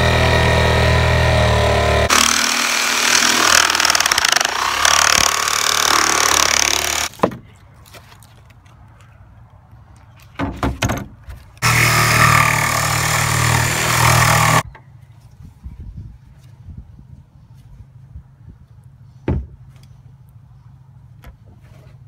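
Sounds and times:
jigsaw cutting fiberglass: 0.0s - 7.1s, 11.6s - 14.6s
power tool running: 0.0s - 7.1s, 11.6s - 14.6s.

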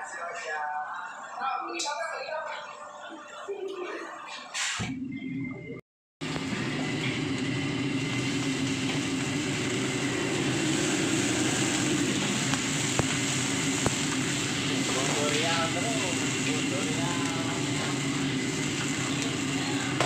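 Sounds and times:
broth boiling in a wok: 6.2s - 20.0s.

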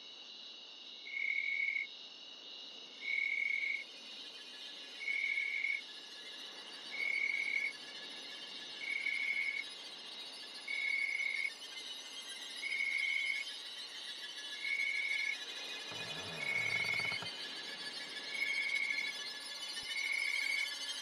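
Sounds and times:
high insect trill: 0.0s - 21.0s
insects trilling chorus: 0.0s - 21.0s.

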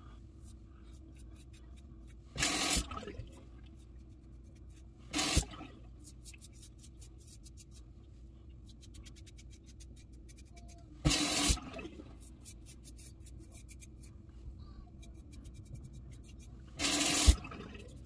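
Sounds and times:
tap water running: 2.3s - 3.5s, 5.1s - 6.0s, 11.0s - 12.3s, 16.7s - 18.0s.

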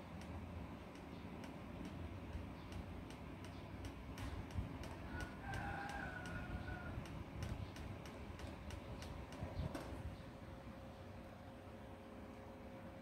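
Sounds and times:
steady light ticking: 0.0s - 9.8s.

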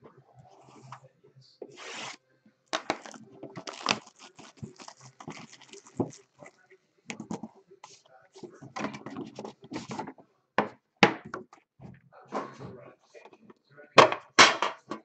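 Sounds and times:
plastic wrapper tearing: 2.8s - 6.6s
plastic crackling and rustling: 2.8s - 10.2s.

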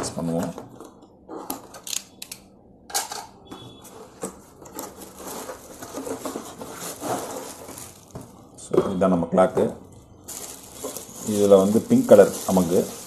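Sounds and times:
cardboard box scraping and rustling: 5.0s - 8.0s.

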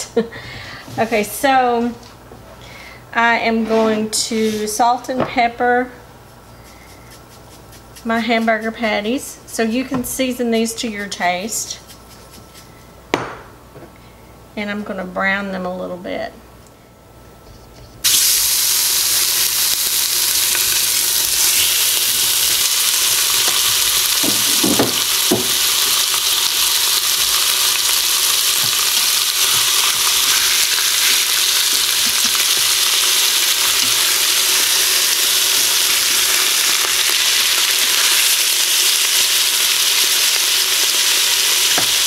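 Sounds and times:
patties sizzling in hot oil: 18.0s - 42.0s.

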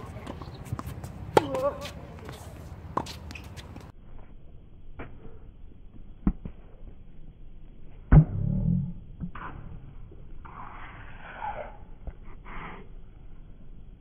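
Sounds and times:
racket hitting tennis ball: 0.0s - 3.9s
low rumble: 3.8s - 14.0s.

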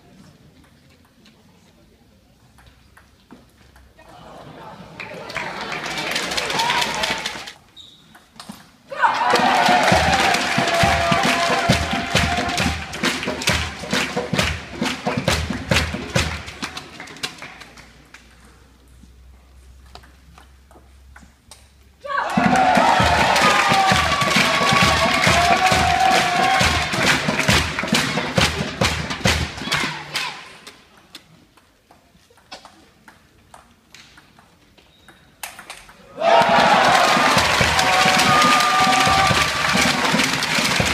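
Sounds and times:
crowd cheering and clapping: 4.9s - 7.6s, 8.9s - 18.0s, 22.1s - 30.4s, 36.0s - 40.9s
crowd erupting in loud cheering: 4.9s - 7.6s, 9.0s - 13.0s, 22.1s - 27.5s, 36.1s - 40.9s.

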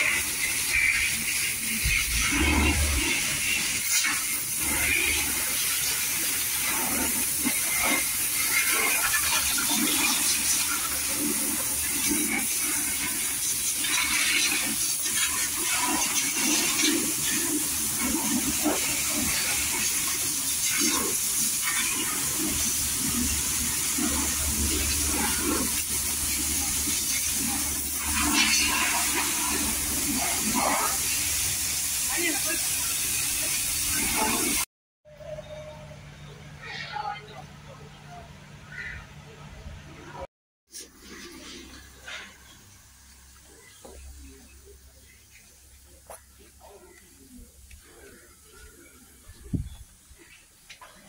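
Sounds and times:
pressure washer spraying: 0.0s - 34.7s.

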